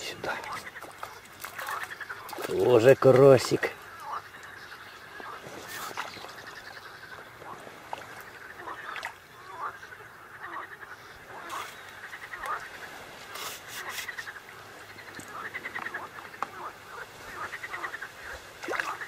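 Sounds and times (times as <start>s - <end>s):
frogs croaking: 0.0s - 19.0s.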